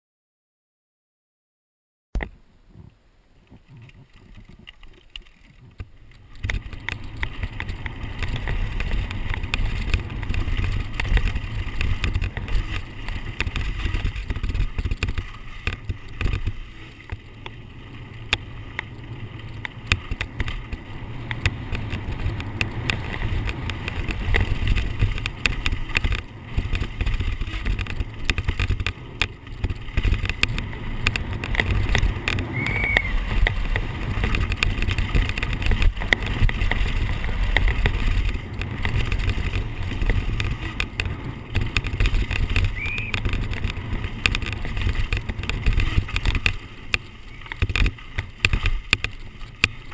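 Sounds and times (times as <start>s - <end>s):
wind buffeting microphone: 2.7s - 49.9s
stones knocking on bike frame: 3.5s - 17.6s, 18.2s - 49.9s
bike rattling and clattering: 3.5s - 49.9s.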